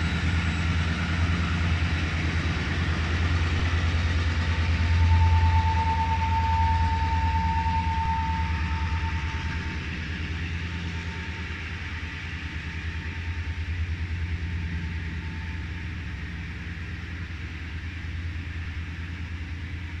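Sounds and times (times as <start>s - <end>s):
diesel locomotive engine drone: 0.0s - 20.0s
thin high whine: 3.1s - 19.6s.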